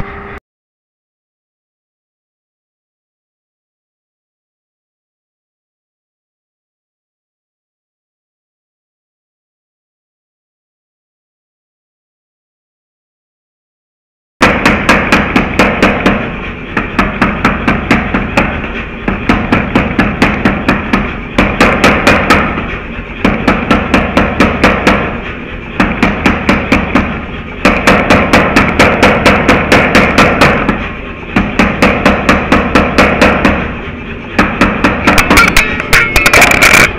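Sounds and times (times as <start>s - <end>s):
machine humming: 0.0s - 0.4s, 14.4s - 36.9s
power hammer striking hot steel: 14.4s - 36.9s.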